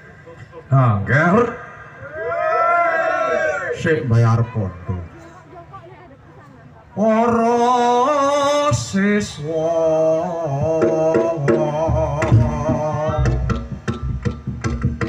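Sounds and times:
deep drum beats: 10.5 - 15.0.

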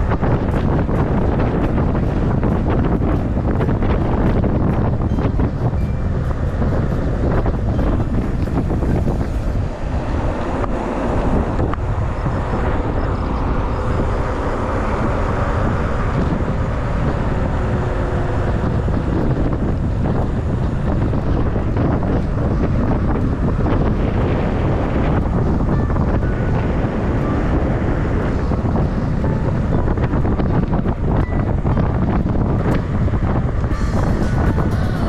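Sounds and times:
wind buffeting microphone: 0.0 - 35.0.

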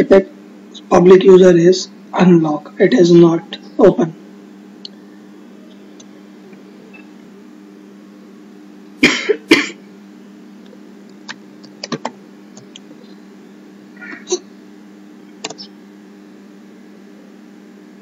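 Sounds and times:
steady low hum: 0.0 - 18.0
man coughing: 9.0 - 9.9
computer mouse clicks: 15.4 - 15.7.

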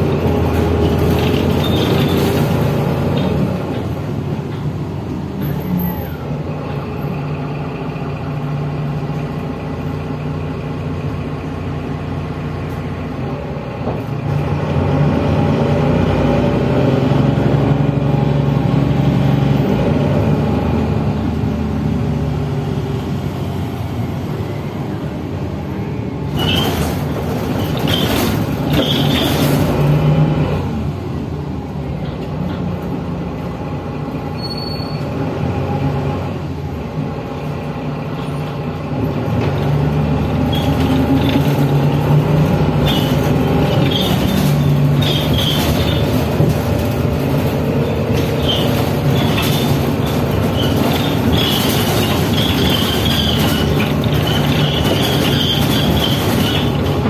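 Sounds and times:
diesel bus engine hum: 0.0 - 57.0
road noise: 0.0 - 57.0
sharp rattles: 26.3 - 29.9, 40.3 - 57.0.

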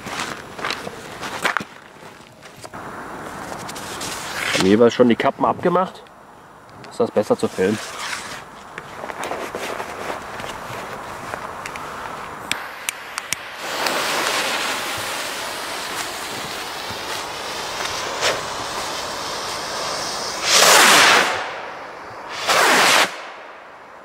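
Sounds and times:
rocket fuses hissing and spitting: 12.5 - 23.3
rocket launching whoosh: 12.6 - 23.8.

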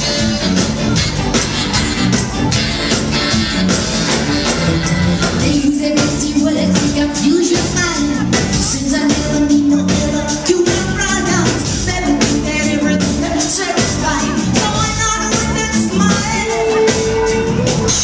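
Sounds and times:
live ska band playing: 0.0 - 18.0
person singing lead: 5.4 - 18.0.

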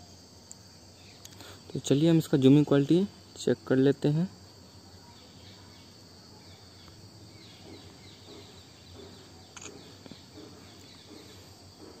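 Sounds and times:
high insect drone: 0.0 - 12.0
sharp click: 9.5 - 9.9.

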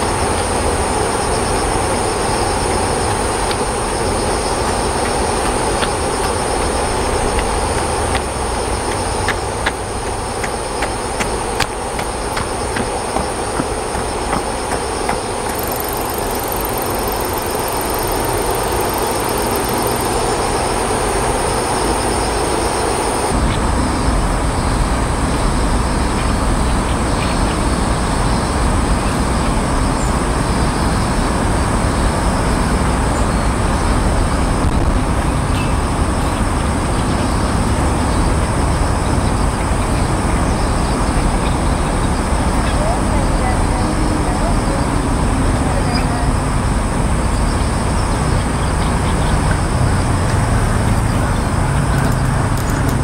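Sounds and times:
distant vehicles rumbling: 0.0 - 53.0
high steady hum: 0.0 - 53.0.

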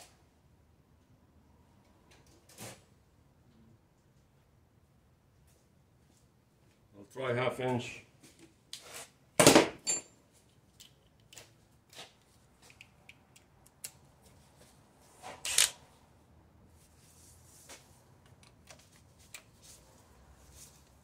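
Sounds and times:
tools clattering: 9.4 - 10.2.

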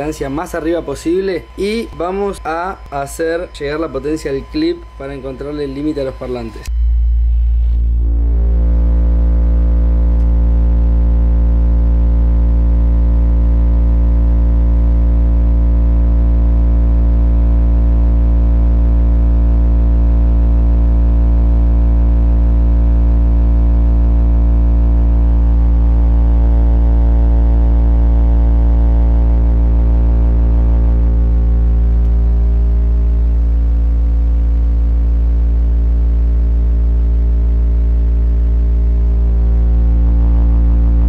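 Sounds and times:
subwoofer deep test tone hum: 0.0 - 41.0.

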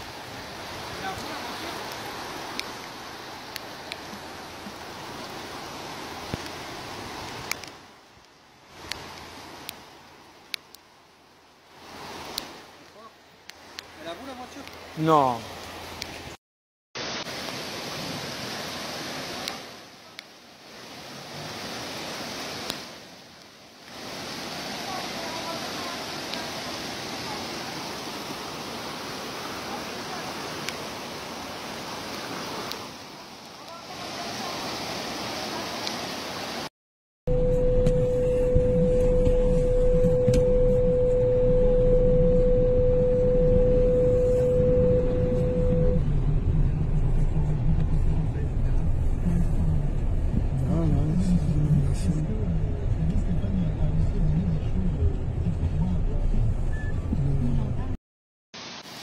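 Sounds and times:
floodwater rushing down street: 0.0 - 16.4, 17.0 - 36.7
steady pure tone: 37.3 - 57.2.

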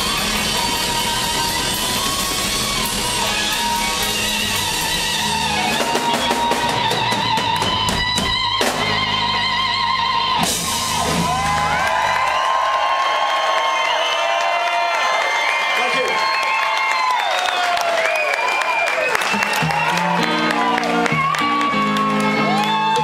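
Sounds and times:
electric guitar lead: 0.0 - 12.3, 19.3 - 23.0
drum kit: 0.0 - 12.9.

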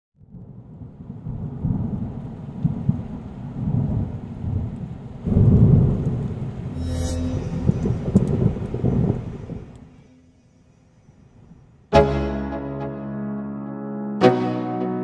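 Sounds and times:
rain: 0.2 - 6.8, 8.1 - 10.0
thunder rumbling: 0.4 - 6.8, 7.4 - 10.0.

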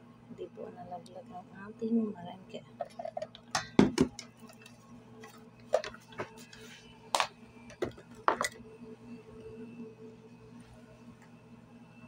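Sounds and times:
faint electrical hum: 0.0 - 12.0
utensil clinking against bowl: 3.2 - 4.7.

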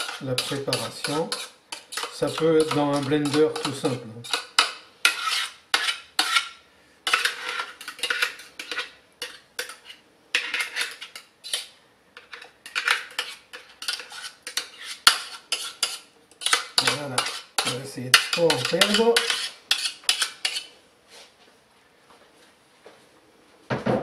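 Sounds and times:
utensil scraping metal jug: 0.0 - 4.4.

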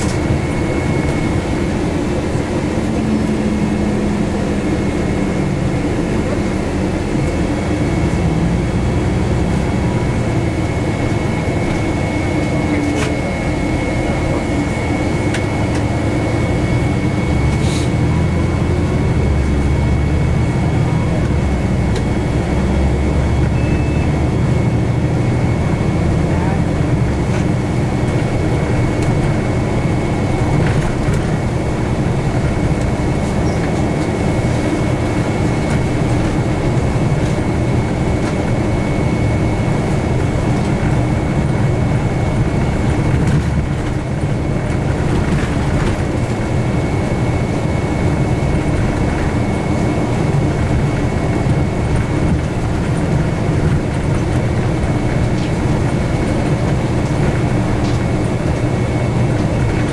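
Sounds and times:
bus engine and tyre rumble: 0.0 - 59.9
faint high whine: 23.4 - 24.2.

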